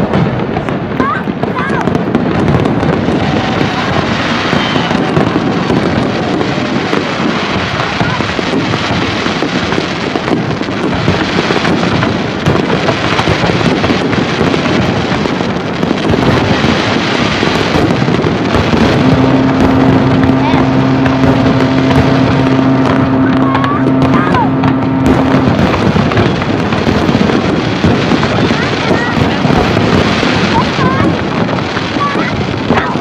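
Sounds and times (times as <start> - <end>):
fireworks bursting and crackling: 0.0 - 33.0
steady low hum: 19.0 - 26.5.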